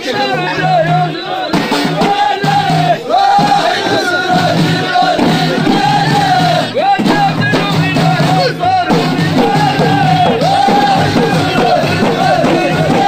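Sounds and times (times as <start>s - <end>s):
frame drums: 0.0s - 13.0s
men chanting in chorus: 0.0s - 13.0s.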